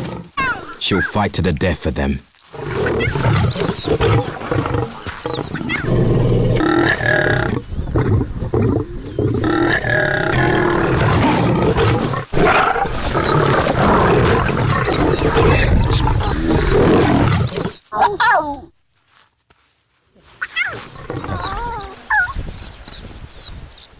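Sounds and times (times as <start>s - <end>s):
lions snarling and growling: 2.5s - 17.8s, 20.7s - 22.0s.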